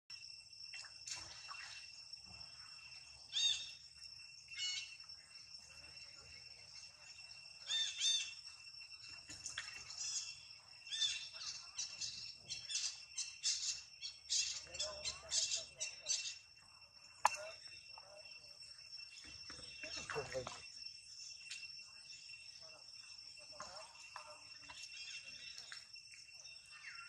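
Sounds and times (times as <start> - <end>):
high arched chirping calls: 3.3 - 5.0, 7.6 - 8.4, 9.5 - 17.9.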